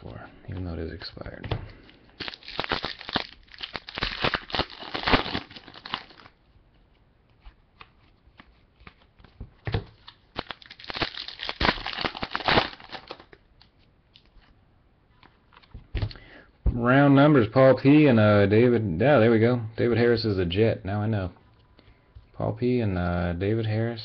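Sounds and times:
foil wrapper tearing and crinkling: 2.2 - 6.3, 10.0 - 13.4.

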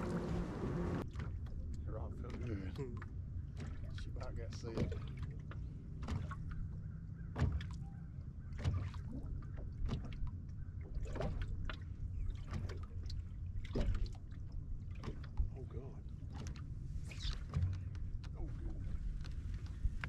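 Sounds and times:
boat rumbling: 0.0 - 20.0
sharp slaps on water: 7.3 - 7.8, 8.5 - 9.2.

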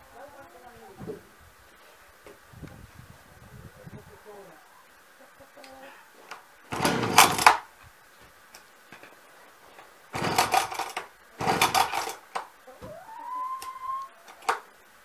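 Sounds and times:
chainsaw recoil starter pulls: 6.7 - 7.7, 10.1 - 12.5.

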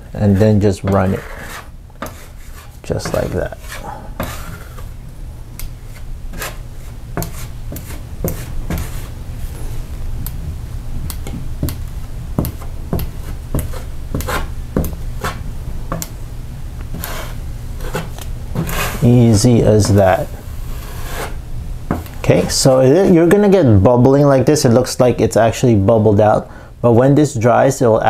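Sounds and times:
steady low hum: 0.0 - 28.0
drywall knife scraping: 0.1 - 4.9, 5.8 - 9.2, 12.4 - 16.0, 16.9 - 21.4.

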